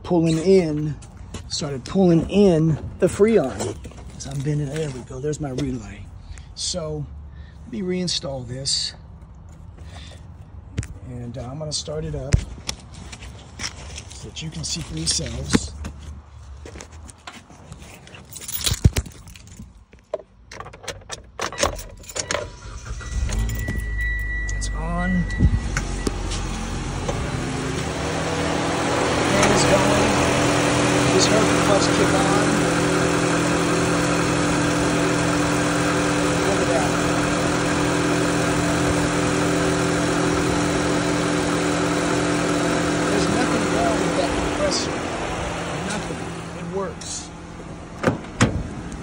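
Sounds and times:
car keys jangling: 0:17.0 - 0:24.6
keys clicking and knocking: 0:18.1 - 0:22.4
car engine idling: 0:22.5 - 0:49.0.

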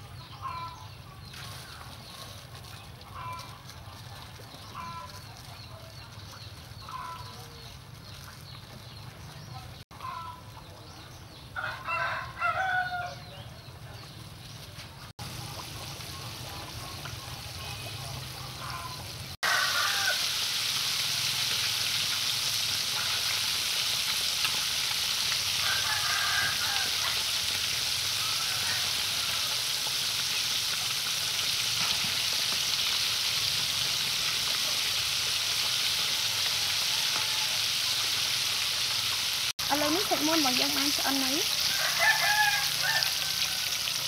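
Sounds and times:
chicken deep-frying in oil: 0:00.0 - 0:44.0.

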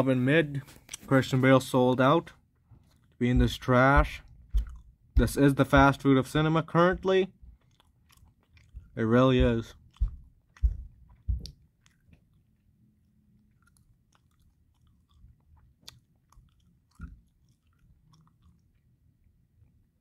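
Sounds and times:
soft low thumps: 0:03.2 - 0:07.6, 0:08.6 - 0:11.6
mouth clicks and smacks: 0:04.0 - 0:05.3, 0:07.5 - 0:12.7, 0:13.5 - 0:18.9.

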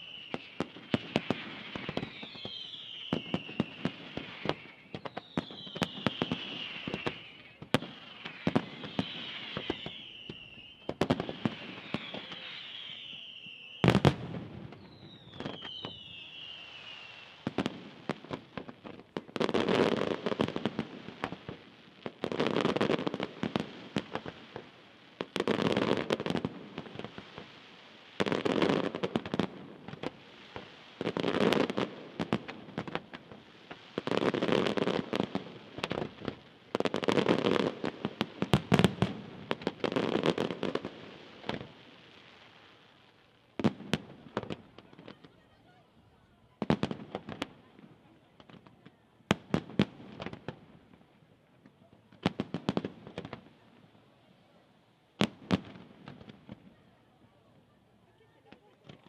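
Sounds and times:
firework whistles falling: 0:00.0 - 0:17.6
rapid crackling firework bangs: 0:17.5 - 0:41.7.

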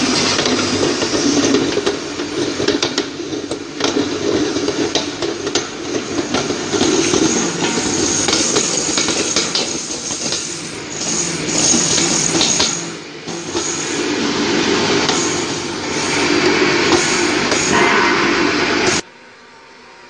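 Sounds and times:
grinding machine motor hum: 0:05.9 - 0:17.8.

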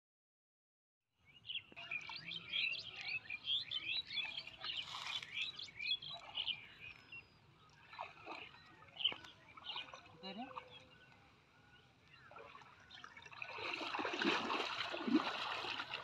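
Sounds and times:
small birds chirping: 0:01.2 - 0:14.0.

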